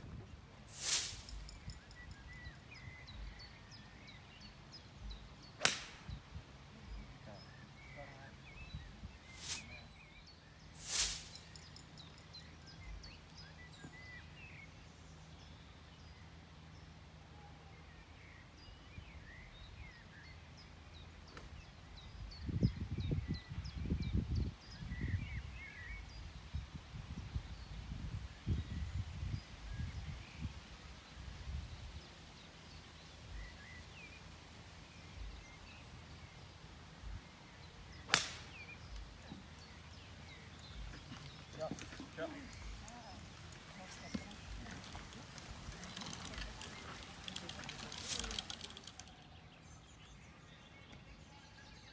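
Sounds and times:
birds chirping: 0.0 - 26.6, 27.4 - 51.9
faint bird chirps: 0.7 - 6.2, 6.8 - 14.8
golf club swing swish: 5.6 - 6.1, 9.3 - 9.8, 38.0 - 38.6.

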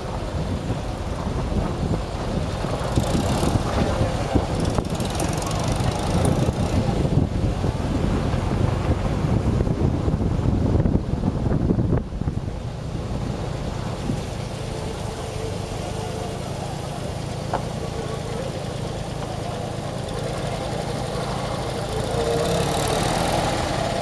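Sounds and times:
wind buffeting microphone: 0.0 - 22.1
car engine running: 0.0 - 24.0
tyres on gravel road noise: 0.0 - 24.0.

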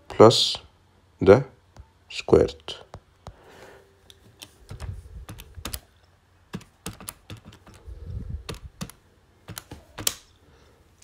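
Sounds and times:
calculator keys clicking: 4.3 - 5.9, 6.5 - 10.3.

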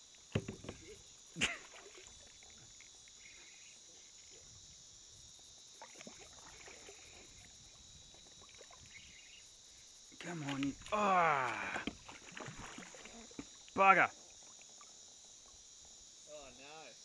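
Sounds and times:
cicadas chorus: 0.0 - 17.0
kayak paddle knocks: 0.3 - 1.0, 10.4 - 12.7.

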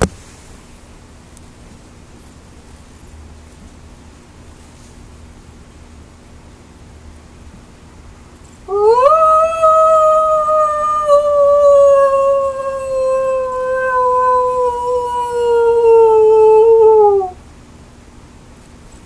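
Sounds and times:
person imitating wolf howl: 8.7 - 17.4.

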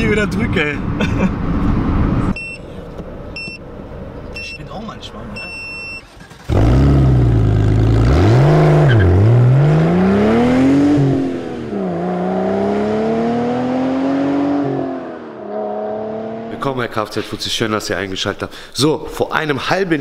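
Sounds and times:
car engine revving: 6.1 - 16.7.

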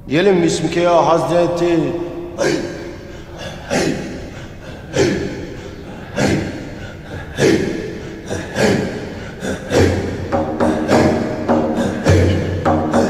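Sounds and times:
held low tone: 8.6 - 13.0.

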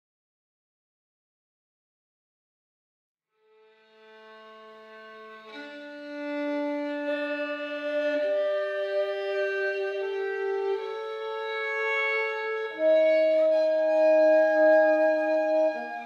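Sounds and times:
violin: 3.4 - 16.0.

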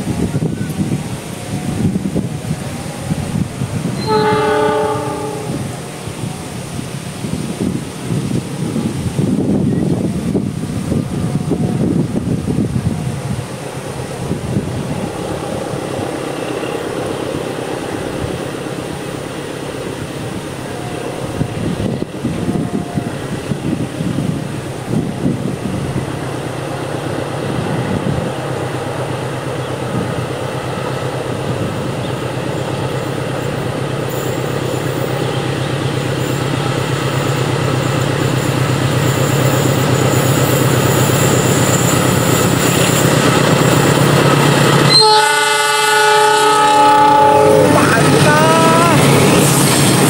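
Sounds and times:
locomotive horn chord: 4.0 - 5.6, 44.9 - 49.0
locomotive engine drone: 9.0 - 50.0.

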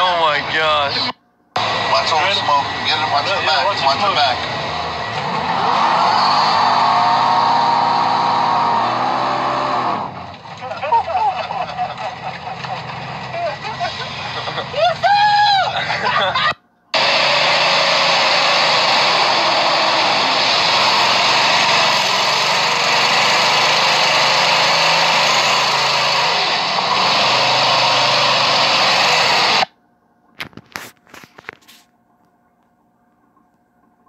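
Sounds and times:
small engine running hard: 1.6 - 10.6, 17.0 - 29.7.

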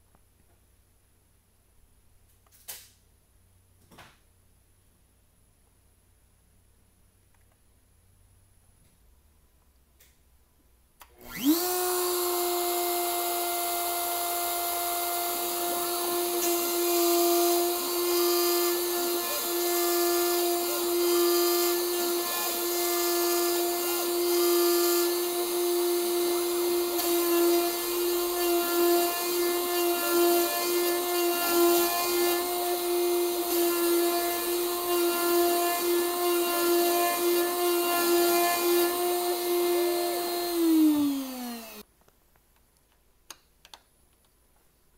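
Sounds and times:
router high whine: 11.0 - 41.8
stepper motors whining: 36.1 - 41.8.

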